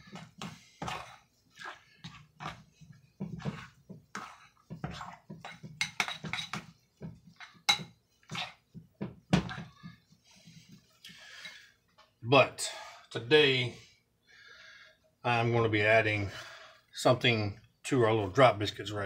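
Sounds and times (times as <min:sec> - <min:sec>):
spoon scraping ceramic bowl: 0:00.0 - 0:08.6.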